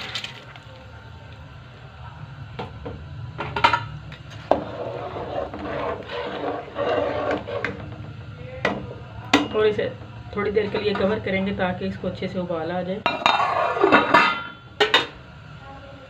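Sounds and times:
low steady hum: 0.0 - 16.0
metal spoon scraping metal pot: 4.5 - 8.0.

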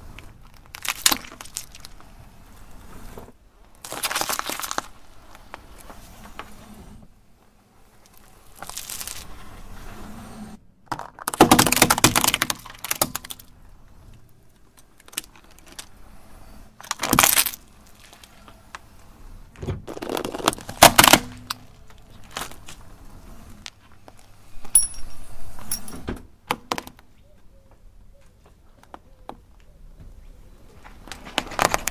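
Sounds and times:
tyre crushing objects on asphalt: 0.2 - 6.5, 7.9 - 9.6, 10.8 - 13.6, 16.8 - 18.8, 19.5 - 22.9, 30.8 - 31.9.

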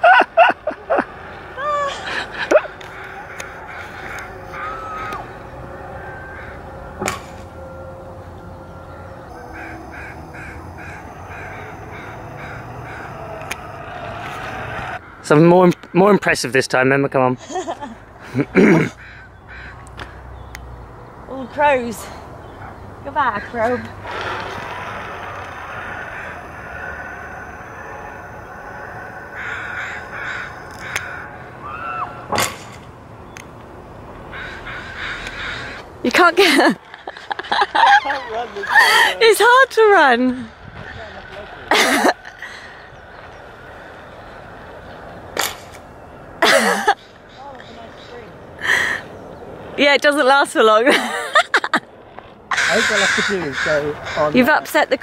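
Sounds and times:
crows cawing: 1.2 - 7.4, 8.6 - 16.6, 18.2 - 20.5, 23.1 - 32.5, 34.2 - 49.1, 52.5 - 55.0
zip wire rumbling: 23.8 - 31.2.

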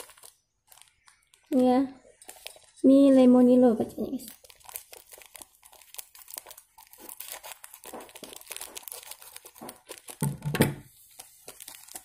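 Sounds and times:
plastic sachet crinkling: 0.0 - 12.0.

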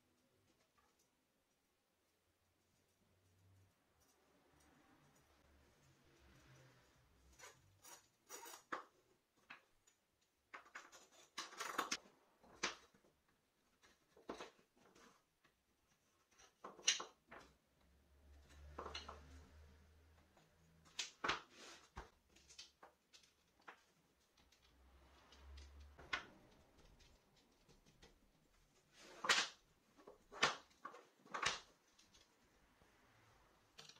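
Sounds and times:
wooden pieces clacking together: 8.4 - 17.6, 20.8 - 32.4.

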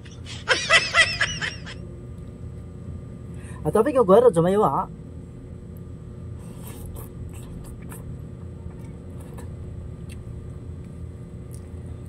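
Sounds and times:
low hum: 0.0 - 12.0
soft chewing: 5.8 - 12.0.

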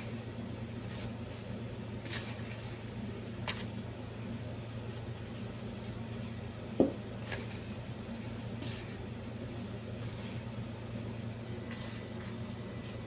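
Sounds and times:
steady low hum: 0.0 - 13.0
hand squishing dough: 6.9 - 13.0.

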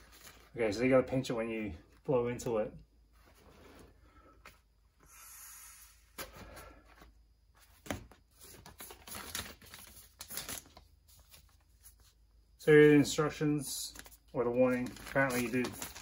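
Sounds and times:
vinyl crinkling and rustling: 0.0 - 1.3, 7.6 - 16.0
paper leaflet rustling: 7.8 - 12.2, 13.9 - 16.0.

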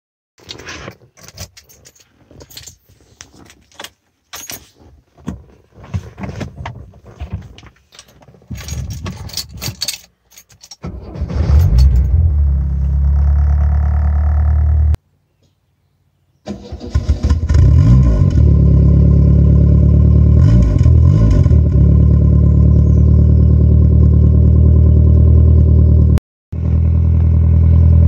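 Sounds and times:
keys jangling: 1.2 - 4.7, 7.9 - 10.8
car engine cranking and running: 10.6 - 15.0, 16.5 - 28.0.

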